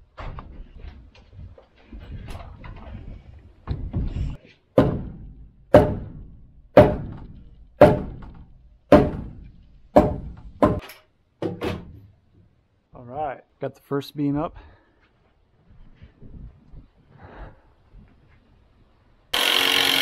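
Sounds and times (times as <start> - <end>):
hammer striking wooden beam: 4.8 - 10.8.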